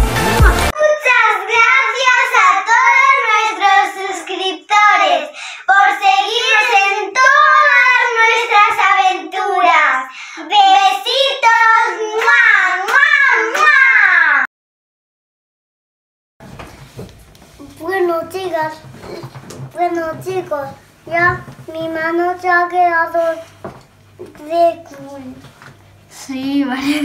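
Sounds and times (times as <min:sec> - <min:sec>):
music with a beat: 0:00.0 - 0:00.7
child singing in high voice: 0:00.8 - 0:14.1.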